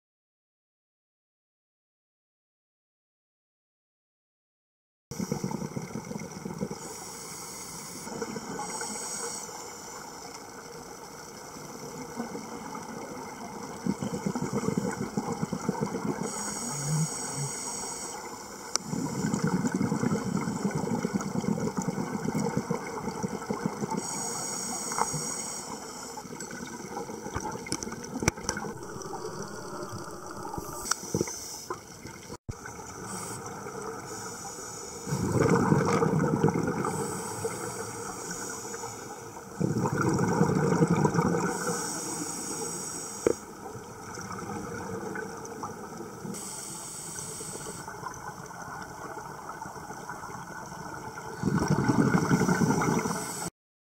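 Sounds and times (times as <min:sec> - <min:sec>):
regulator hissing inhalations: 0:06.8 - 0:10.2, 0:16.2 - 0:19.4, 0:23.9 - 0:26.3, 0:29.0 - 0:31.8, 0:33.0 - 0:35.4, 0:36.8 - 0:39.4, 0:41.5 - 0:43.5, 0:46.4 - 0:47.9
bubbling exhalations: 0:18.8 - 0:24.0, 0:26.5 - 0:31.3, 0:35.1 - 0:37.0, 0:39.6 - 0:41.6, 0:51.3 - 0:53.2.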